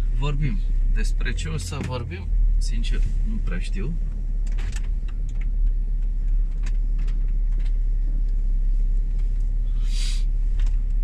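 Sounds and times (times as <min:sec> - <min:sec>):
car cabin road and engine rumble: 0:00.0 - 0:11.0
brief hiss: 0:09.7 - 0:10.3.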